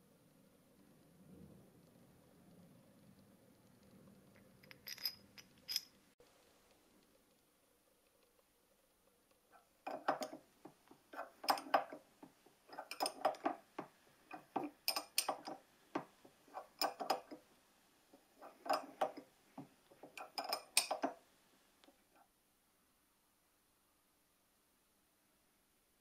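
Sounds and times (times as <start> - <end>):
metallic clicking and scraping: 11.1 - 12.0, 12.6 - 13.7, 14.3 - 15.6, 16.5 - 17.4, 18.1 - 19.3, 19.9 - 21.2.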